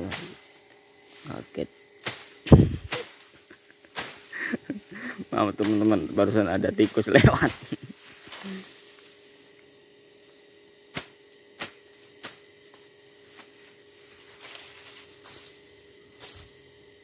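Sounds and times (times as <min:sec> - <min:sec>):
insects droning: 0:00.0 - 0:17.0
blade slashing weeds: 0:02.0 - 0:03.3, 0:03.9 - 0:04.3.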